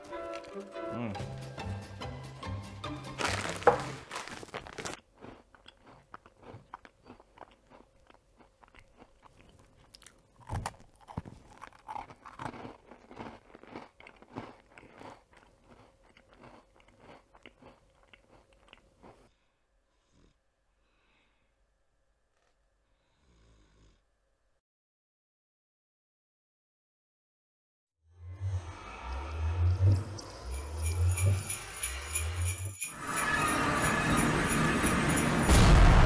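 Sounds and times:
cookies crunching while chewed: 0.0s - 0.6s, 3.1s - 19.3s.

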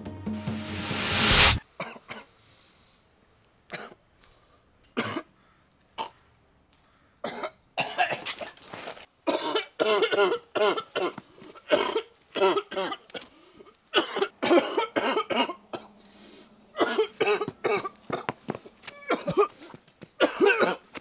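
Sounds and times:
drum-led background music: 0.0s - 1.6s
boy coughing and gagging: 7.2s - 8.3s, 9.3s - 13.0s, 13.9s - 15.8s, 16.8s - 18.3s, 19.0s - 19.6s, 20.2s - 20.9s.

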